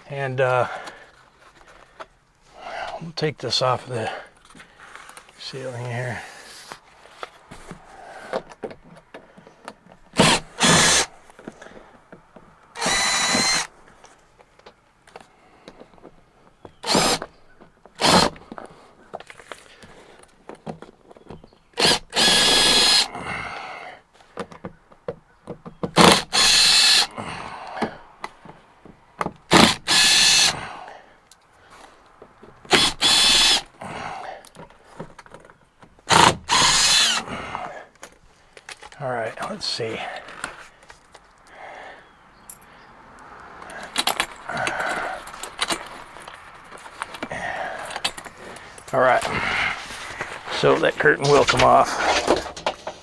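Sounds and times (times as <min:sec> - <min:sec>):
power drill driving screws: 0:10.1 - 0:11.1, 0:12.7 - 0:13.7, 0:16.8 - 0:17.3, 0:18.0 - 0:18.4, 0:21.8 - 0:23.1, 0:26.0 - 0:27.1, 0:29.5 - 0:30.6, 0:32.7 - 0:33.7, 0:36.1 - 0:37.3.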